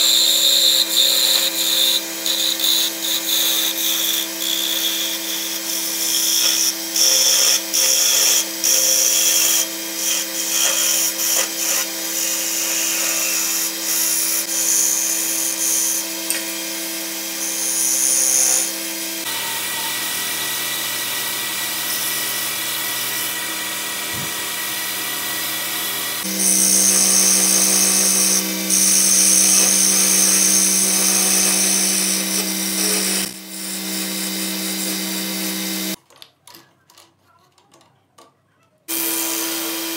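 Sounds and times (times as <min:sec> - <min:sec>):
chisel cutting spinning wood: 0:00.0 - 0:36.0, 0:38.9 - 0:39.9
lathe motor running: 0:18.6 - 0:36.0, 0:38.9 - 0:39.9.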